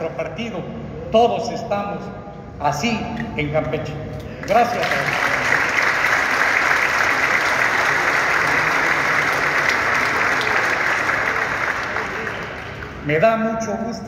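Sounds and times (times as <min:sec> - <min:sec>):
audience applauding: 0:04.4 - 0:13.0.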